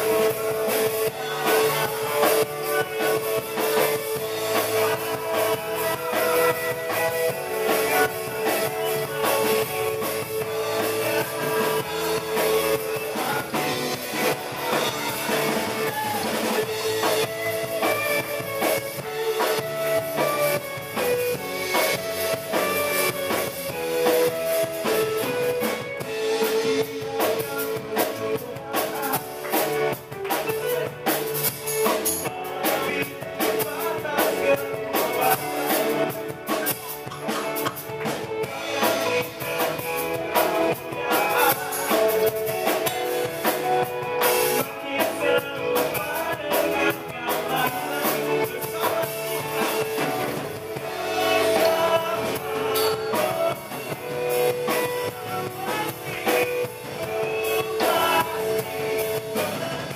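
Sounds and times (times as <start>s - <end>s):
live rock band playing: 0.0s - 59.9s
man singing: 0.0s - 59.9s.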